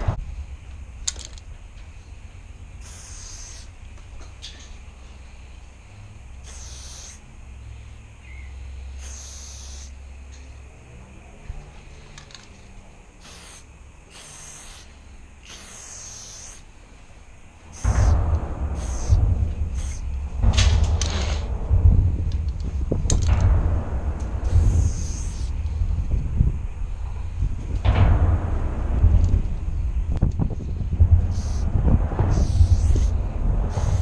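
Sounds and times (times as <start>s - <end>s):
low steady rumble: 0.0s - 6.5s, 16.6s - 34.0s
spray paint can hissing: 2.8s - 3.8s, 6.4s - 7.2s, 9.0s - 9.9s, 13.2s - 16.8s, 17.7s - 18.2s, 18.8s - 20.1s, 24.4s - 25.5s, 31.3s - 31.6s, 32.3s - 33.1s.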